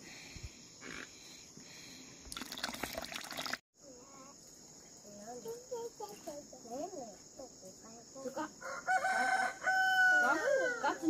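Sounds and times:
high drone of insects: 0:03.8 - 0:11.0
rooster crowing: 0:08.6 - 0:11.0.

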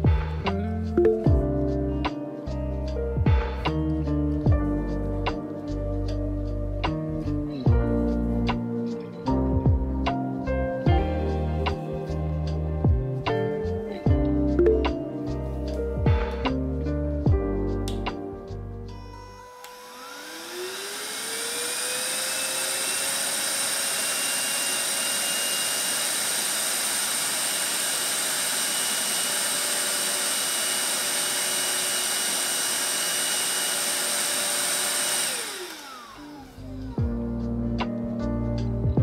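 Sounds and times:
handheld vacuum cleaner whining: 0:18.9 - 0:37.2.

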